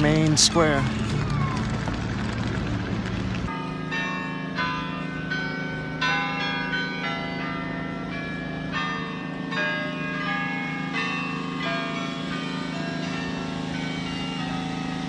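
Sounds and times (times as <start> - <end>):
church bells ringing: 0.0 - 1.1, 3.5 - 15.0.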